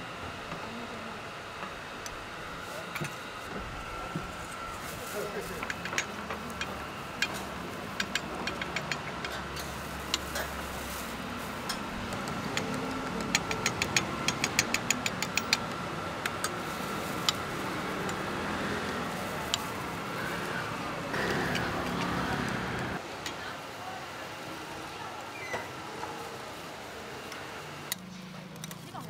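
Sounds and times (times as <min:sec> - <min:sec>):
street noise hum: 0:00.0 - 0:29.0
plastic bag rustling: 0:04.3 - 0:05.6, 0:09.6 - 0:11.7.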